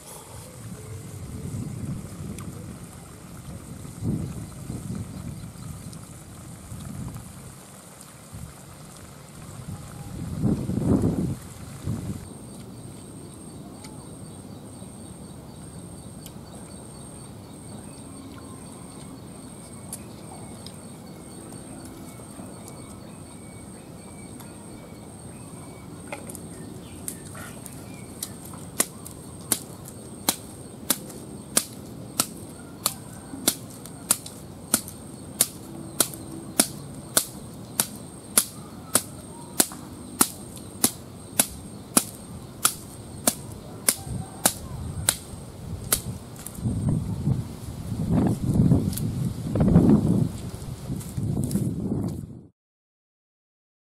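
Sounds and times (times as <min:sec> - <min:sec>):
steady high whine: 0:00.0 - 0:51.1
blade chopping wood: 0:30.3 - 0:45.3.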